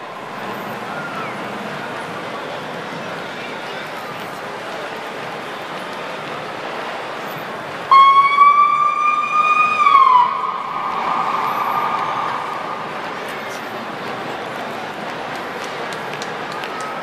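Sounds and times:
emergency vehicle siren: 0.0 - 2.2, 7.9 - 14.1.

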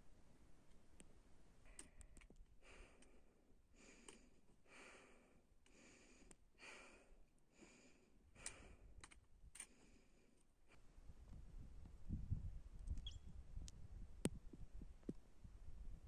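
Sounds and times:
faint hard breathing: 2.6 - 9.0, 9.6 - 10.4.

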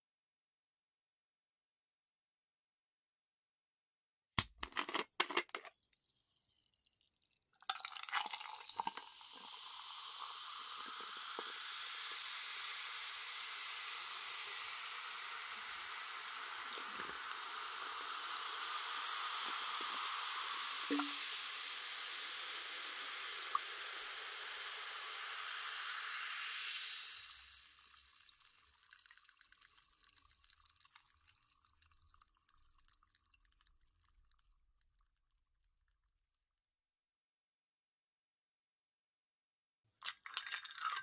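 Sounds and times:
soda fizzing: 6.2 - 34.5, 40.0 - 41.0.

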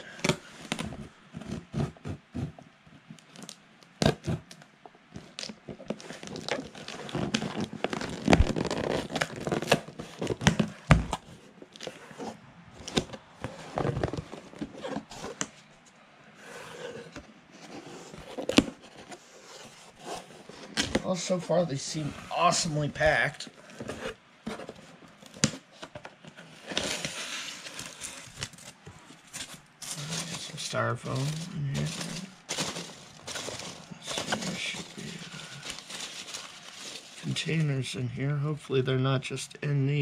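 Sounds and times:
tape tearing and cardboard crackling: 5.2 - 15.5, 17.0 - 21.2, 23.7 - 37.6.

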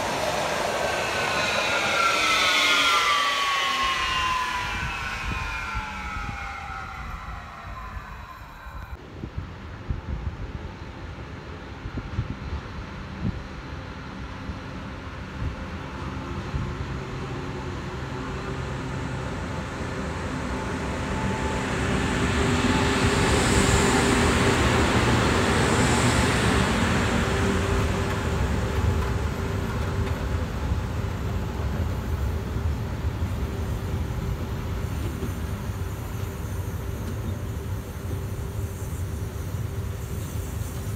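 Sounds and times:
high hisses: 0.0 - 9.0, 33.8 - 40.9
electric locomotive passing: 0.0 - 40.9.

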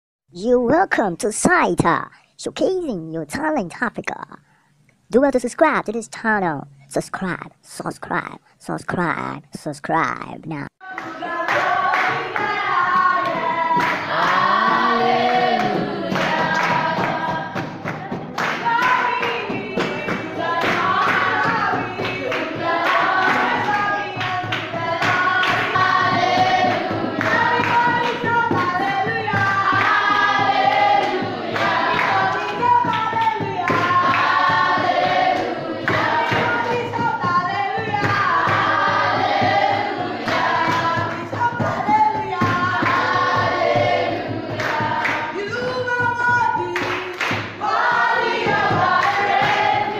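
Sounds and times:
group singing gospel song: 10.8 - 49.9
hand clapping: 10.8 - 49.9.

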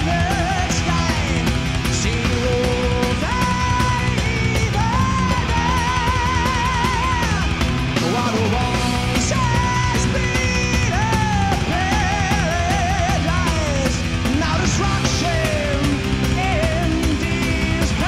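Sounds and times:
bending lead guitar melody: 0.0 - 18.0
live heavy metal band: 0.0 - 18.0.

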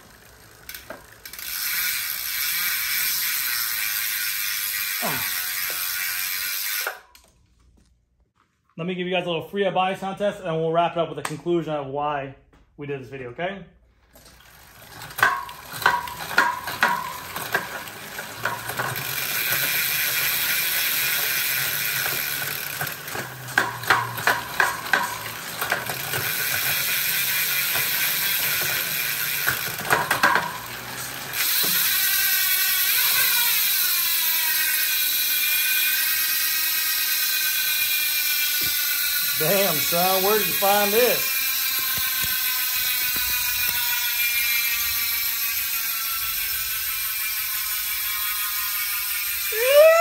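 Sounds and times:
freewheel buzzing: 0.0 - 7.2, 14.0 - 50.0
bicycle chain clicking: 0.0 - 7.4, 14.0 - 50.0.

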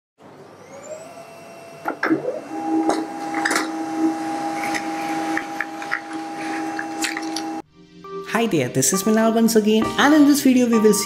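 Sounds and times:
printer motor whine: 0.3 - 7.6
printer mechanism humming: 0.6 - 7.6.

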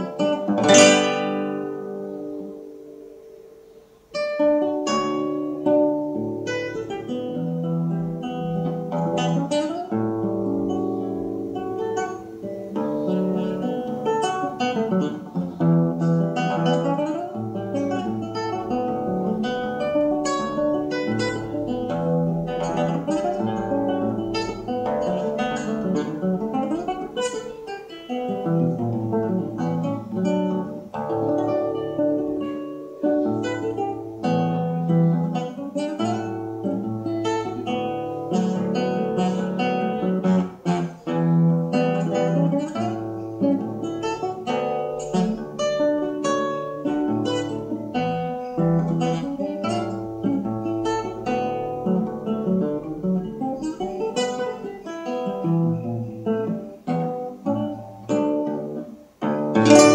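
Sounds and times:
fingerpicked classical guitar: 0.0 - 59.9.

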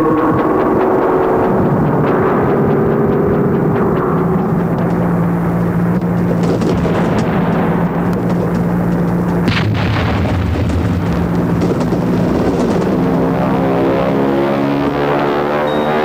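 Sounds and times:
low rumbling drone: 0.0 - 16.0
sustained brass-like chords: 12.8 - 16.0.

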